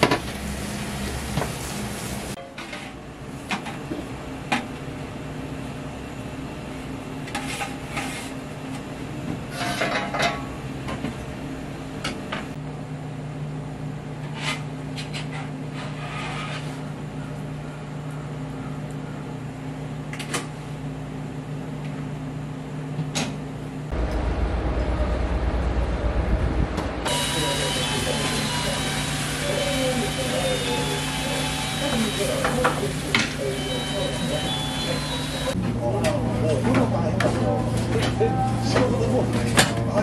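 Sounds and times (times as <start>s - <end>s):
kitchen machinery hum: 0.0s - 40.0s
loud low rumble: 23.9s - 29.3s.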